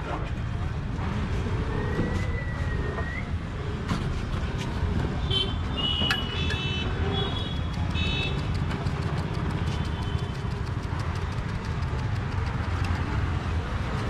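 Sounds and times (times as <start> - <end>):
street traffic rumble: 0.0 - 14.0
sharp clicks: 7.6 - 13.4.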